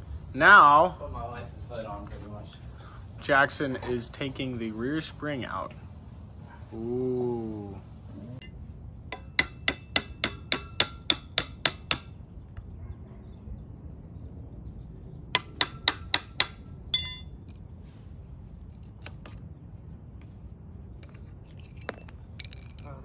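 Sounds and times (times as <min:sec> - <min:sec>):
metal-on-metal strikes: 0:09.1 - 0:12.2, 0:15.4 - 0:17.5
metallic clatter: 0:15.4 - 0:17.5, 0:21.0 - 0:23.0.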